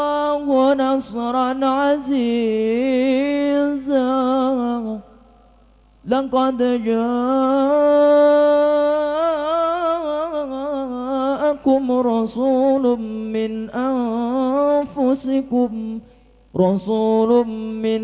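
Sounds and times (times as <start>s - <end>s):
man reciting melodically into microphone: 0.0s - 18.0s.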